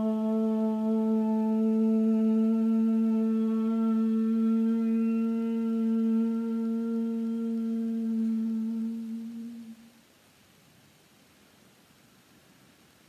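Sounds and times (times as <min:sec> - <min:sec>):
woman chanting om: 0:00.0 - 0:10.0.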